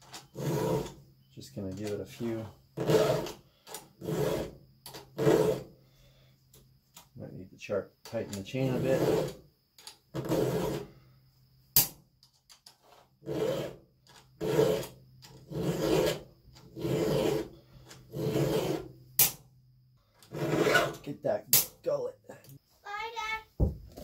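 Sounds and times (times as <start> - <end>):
file rasping on chainsaw chain: 0.3 - 1.0, 2.1 - 5.7, 8.4 - 9.4, 10.2 - 10.9, 12.8 - 18.9, 20.2 - 21.0.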